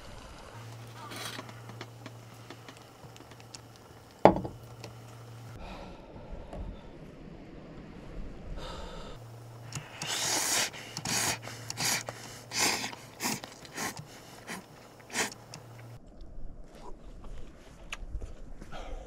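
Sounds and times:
low steady hum: 0.0 - 18.6
person slurping noodles: 9.8 - 15.4.

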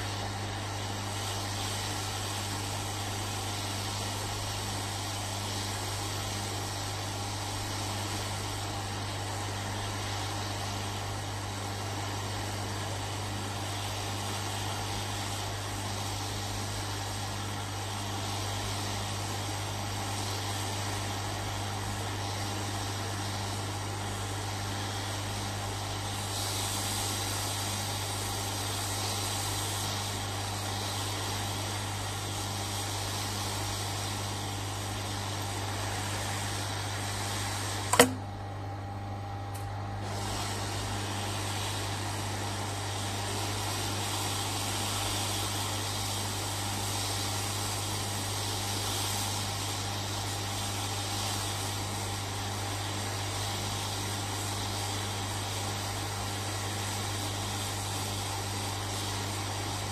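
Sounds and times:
hot-air station hissing: 0.0 - 59.9
sharp click: 37.9 - 38.3.

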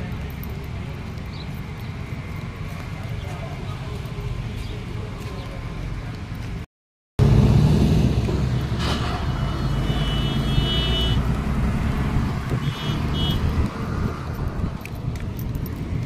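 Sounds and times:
road traffic: 0.0 - 16.0
wind rumble on microphone: 11.2 - 16.0.

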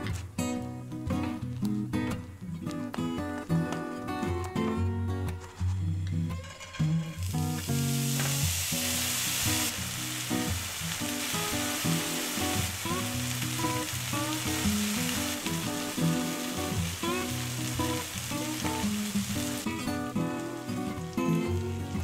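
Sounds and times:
cheese sizzling in a pan: 6.5 - 22.0.

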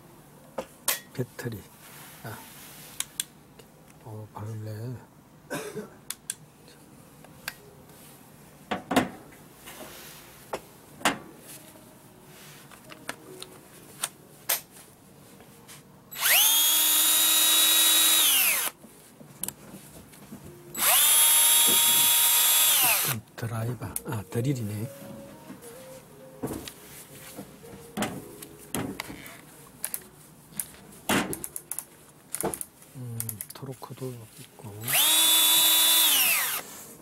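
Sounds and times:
cordless drill whining: 16.2 - 18.8, 20.8 - 23.2, 34.8 - 36.6.

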